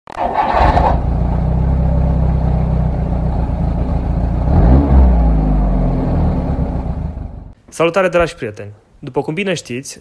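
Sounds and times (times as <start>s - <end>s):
car engine running and revving: 0.6s - 7.5s.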